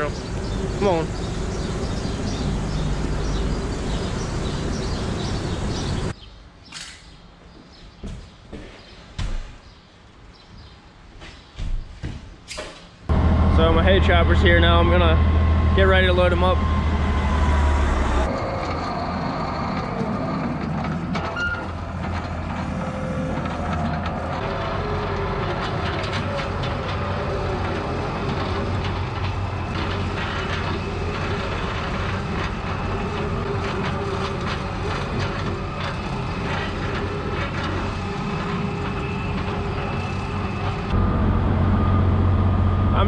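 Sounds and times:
farm machinery engine hum: 0.0 - 6.1, 13.1 - 43.0
wavering whines: 13.1 - 43.0.

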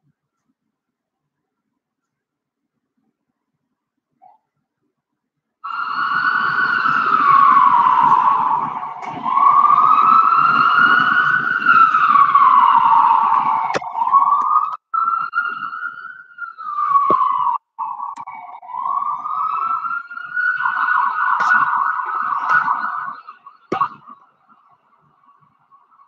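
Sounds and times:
ambulance siren wailing: 5.6 - 26.0.

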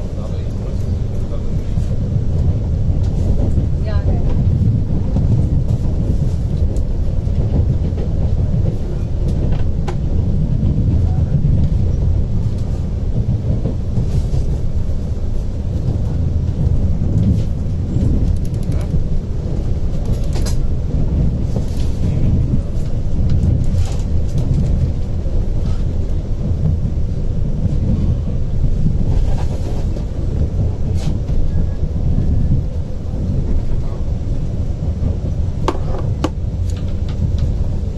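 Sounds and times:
train interior rumble: 0.0 - 37.9
wheels clicking on track: 15.7 - 26.9.

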